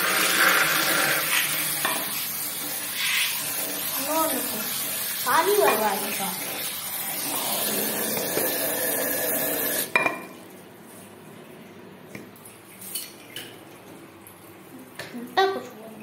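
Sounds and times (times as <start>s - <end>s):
water running: 0.0s - 16.0s
dish clinking: 9.9s - 10.4s.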